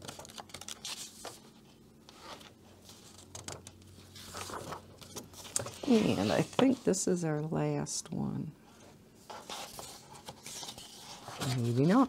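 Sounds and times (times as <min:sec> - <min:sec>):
paper pages rustling: 0:00.0 - 0:06.9, 0:09.2 - 0:12.0.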